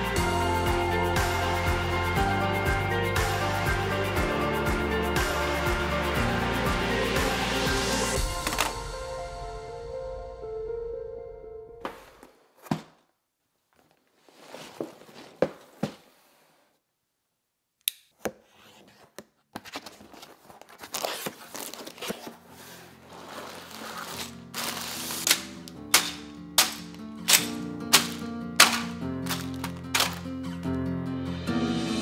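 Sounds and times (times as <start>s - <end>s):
music with steady beat: 0.0s - 9.8s
cardboard tearing and rustling: 18.4s - 30.6s.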